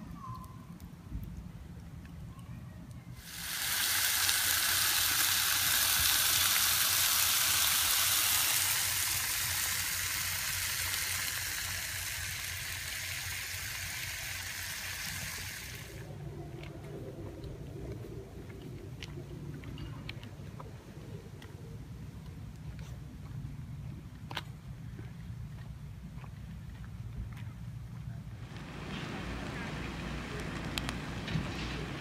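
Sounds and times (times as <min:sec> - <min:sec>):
loud rushing hiss: 0:03.2 - 0:16.1, 0:28.4 - 0:32.0.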